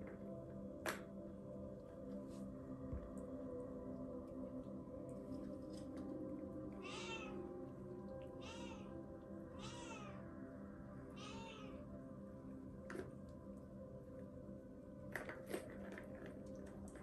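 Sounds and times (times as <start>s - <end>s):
kitten mewing: 6.8s - 7.4s, 8.4s - 8.8s, 9.6s - 10.2s.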